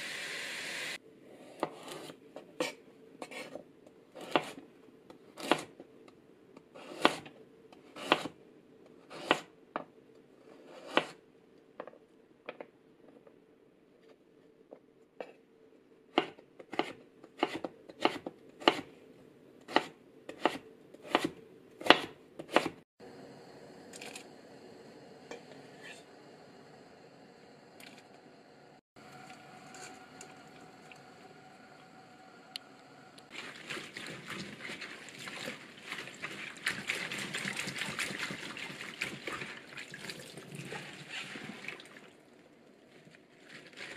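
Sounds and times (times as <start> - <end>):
knife chopping on cutting board: 16.2 - 18.9, 19.7 - 22.8.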